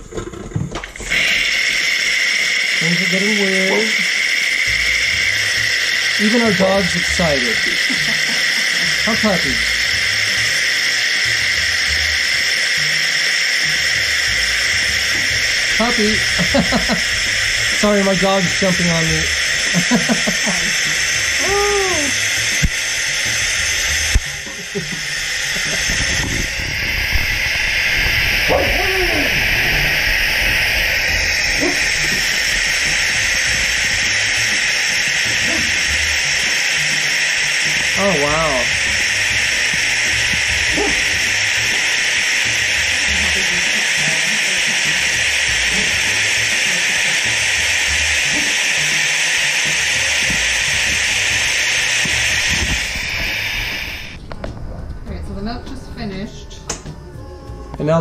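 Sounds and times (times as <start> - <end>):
milk frother hissing: 0.0 - 54.3
dog whining: 40.7 - 41.1.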